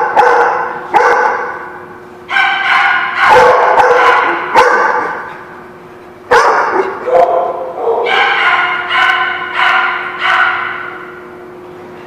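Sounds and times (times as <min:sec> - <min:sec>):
dogs barking and yipping: 0:00.0 - 0:01.6, 0:02.3 - 0:05.6, 0:06.3 - 0:11.2.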